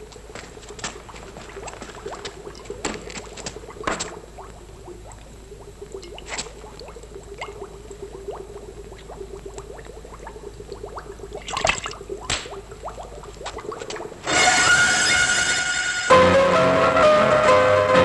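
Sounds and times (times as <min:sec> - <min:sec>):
wet dripping and squelching: 0:00.0 - 0:14.3
faint steady hum: 0:00.0 - 0:16.1.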